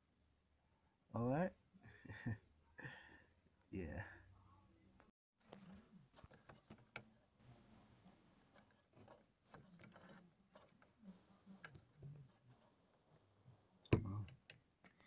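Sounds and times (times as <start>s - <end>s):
faint handling clicks and taps: 8.5s - 13.1s.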